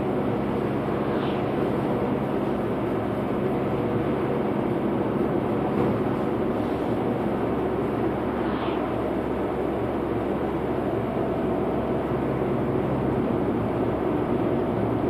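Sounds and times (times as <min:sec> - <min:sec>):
engine and tyre drone: 0:00.0 - 0:15.0
passing car whoosh: 0:00.6 - 0:02.4, 0:06.6 - 0:11.1.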